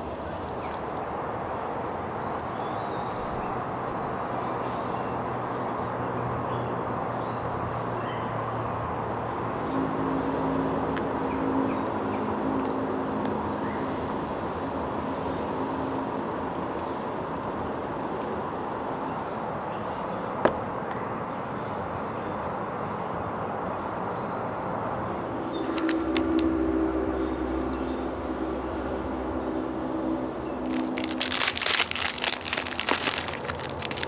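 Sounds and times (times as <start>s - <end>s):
low hum: 25.2s - 34.0s.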